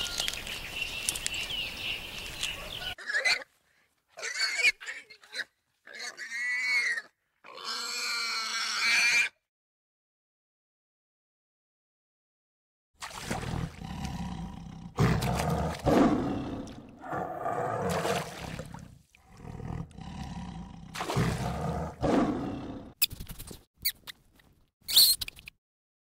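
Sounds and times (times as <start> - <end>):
tiger roaring: 13.4 - 23.0
monkey squeaking: 24.8 - 25.5.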